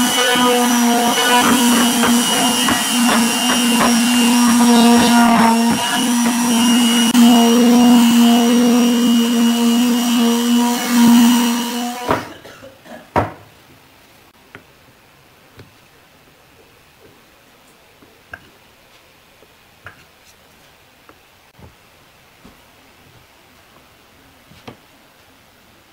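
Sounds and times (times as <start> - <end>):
electric sander humming: 0.0 - 12.2.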